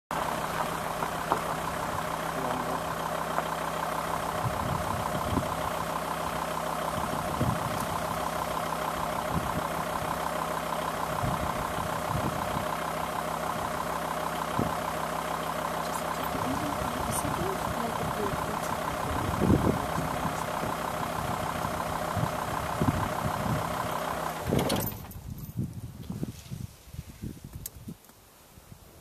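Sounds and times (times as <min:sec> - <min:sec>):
vehicle engine idling: 0:00.1 - 0:27.4.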